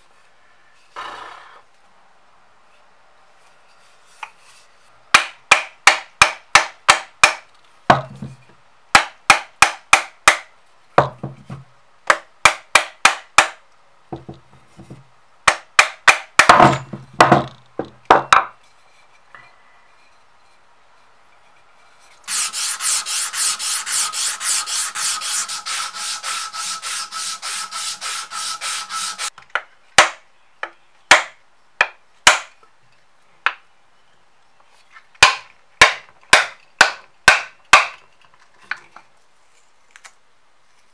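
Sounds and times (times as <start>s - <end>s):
fast scraping on wood: 22.3s - 29.3s.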